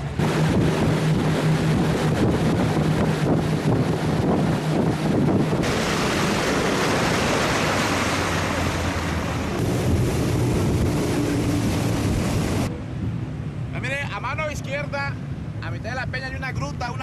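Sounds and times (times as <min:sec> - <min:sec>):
boat engine drone: 0:00.0 - 0:17.0
rushing water: 0:00.0 - 0:17.0
wind buffeting microphone: 0:00.0 - 0:17.0.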